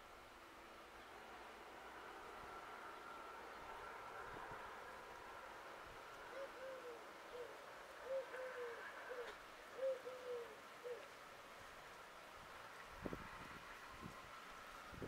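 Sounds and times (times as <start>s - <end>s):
bird calling low notes: 6.3s - 11.1s.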